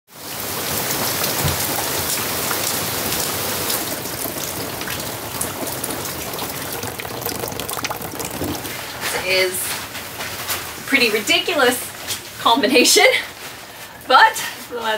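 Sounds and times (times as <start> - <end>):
heavy rain on a boat and sea: 0.1 - 11.7.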